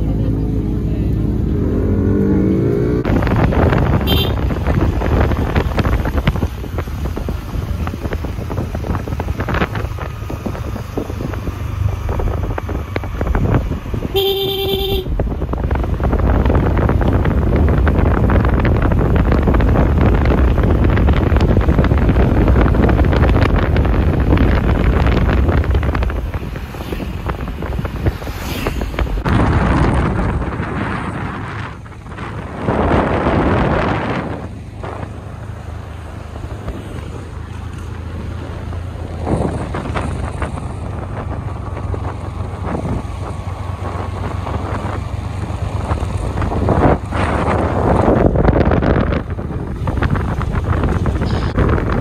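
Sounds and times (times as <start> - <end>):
motorbike engine: 0.0 - 52.0
road noise: 0.0 - 52.0
wind buffeting microphone: 0.0 - 52.0
vehicle horn honking: 4.0 - 4.5, 14.1 - 15.2.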